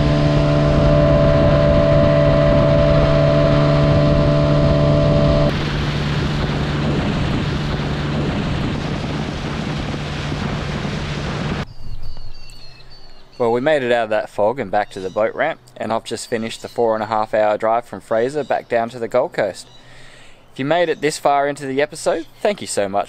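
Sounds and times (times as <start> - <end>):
boat motor running: 0.0 - 11.6
water spray rushing: 0.0 - 11.6
wind rushing: 0.0 - 12.1.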